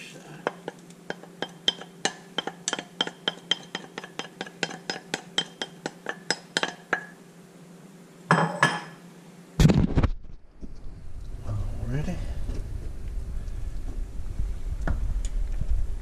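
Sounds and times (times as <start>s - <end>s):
wooden spoon clinking on plate: 0.4s - 7.1s.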